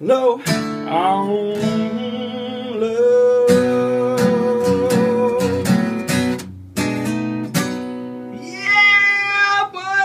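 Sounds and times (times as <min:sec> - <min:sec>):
acoustic guitar strumming: 0:00.0 - 0:10.0
man singing held note: 0:08.4 - 0:10.0.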